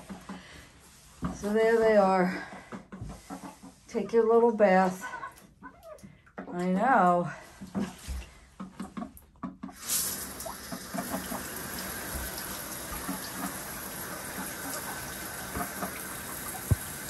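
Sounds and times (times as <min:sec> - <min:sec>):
shower water running into pool: 0:09.6 - 0:17.0.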